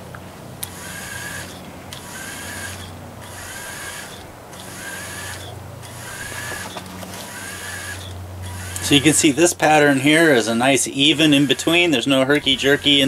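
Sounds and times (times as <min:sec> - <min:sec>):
electric fishing reel whirring: 0:00.6 - 0:13.0.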